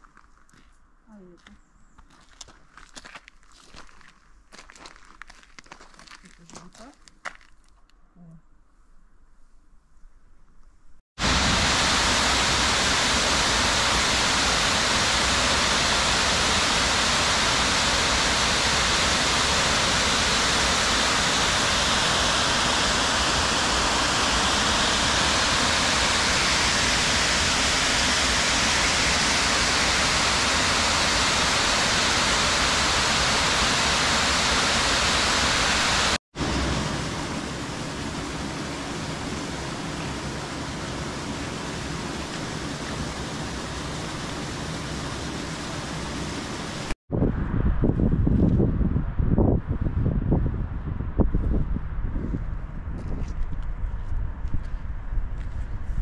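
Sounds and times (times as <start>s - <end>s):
water rushing over weir: 11.2s - 47.0s.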